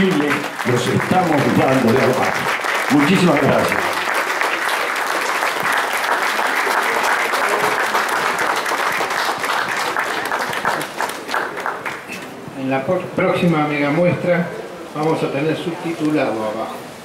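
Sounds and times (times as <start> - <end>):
audience applauding: 0.0 - 12.2.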